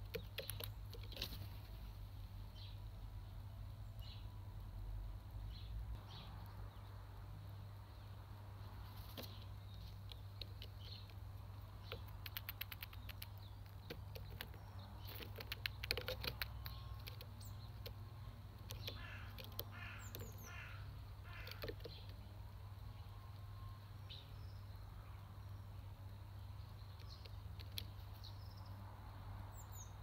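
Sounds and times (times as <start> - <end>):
beak tapping and cracking shells: 0.0 - 1.4, 9.9 - 18.0, 18.6 - 20.6, 21.3 - 22.2, 26.9 - 28.0.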